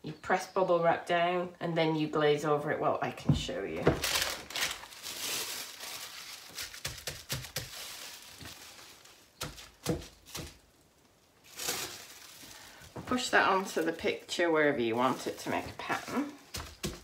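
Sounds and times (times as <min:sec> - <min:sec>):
bubble wrap crinkling: 0:03.8 - 0:17.0.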